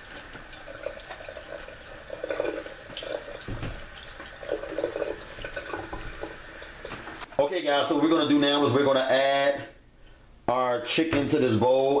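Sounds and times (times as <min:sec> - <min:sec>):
running water: 0:00.0 - 0:07.3.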